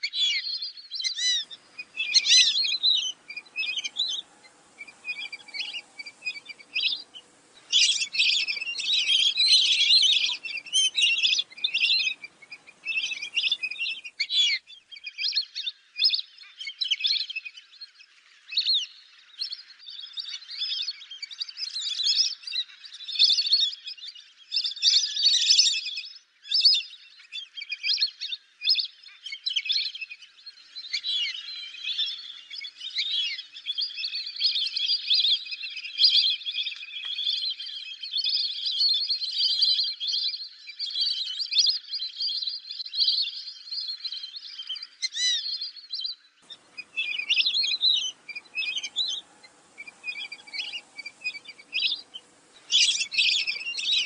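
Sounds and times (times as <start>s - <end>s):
whistling ducks calling: 0.0s - 17.6s, 26.7s - 54.0s
faint low background noise: 0.1s - 23.1s, 46.2s - 54.0s.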